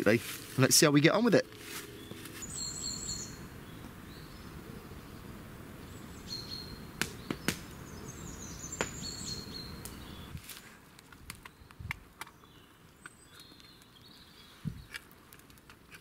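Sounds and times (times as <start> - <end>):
low woodland rumble: 0.4 - 10.4
small birds calling: 1.6 - 10.4, 11.4 - 15.0.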